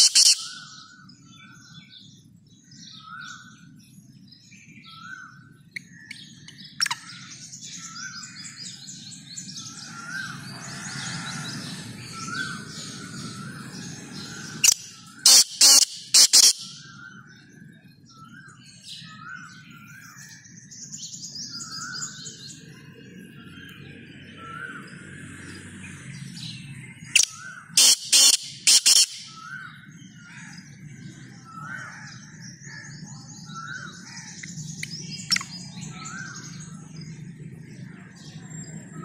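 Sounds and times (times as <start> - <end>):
francolin calling harsh notes: 0.0 - 0.6, 14.6 - 16.9, 27.2 - 29.4
small birds chirping: 0.0 - 39.0.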